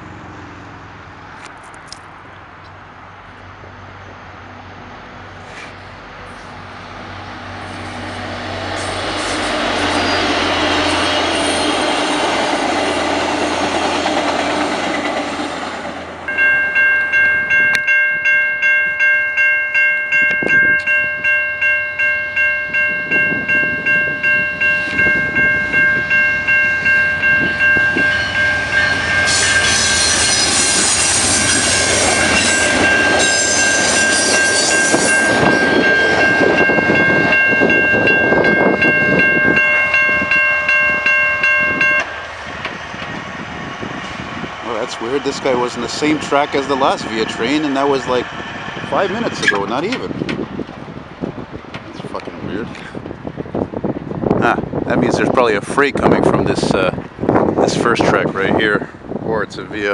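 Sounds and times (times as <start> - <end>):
passenger train passing: 0.0 - 59.9
railroad crossing bell ringing: 7.6 - 15.3, 16.1 - 50.2.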